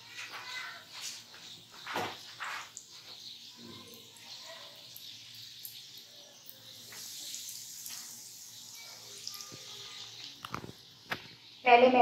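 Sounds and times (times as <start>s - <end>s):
food frying in hot oil: 0.0s - 12.0s
crackling oil pops: 10.4s - 11.4s.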